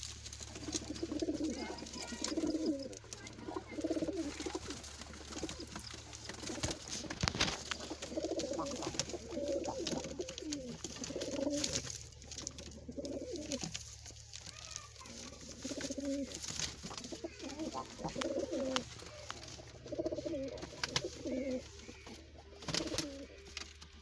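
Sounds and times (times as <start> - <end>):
pigeons cooing: 0.0 - 24.0.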